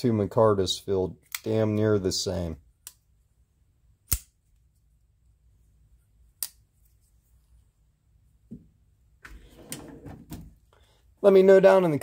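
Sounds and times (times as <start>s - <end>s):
knife blade metallic snap: 4.1s - 4.3s
handling rustle with small clicks: 6.5s - 7.7s
soft tap: 8.5s - 8.7s.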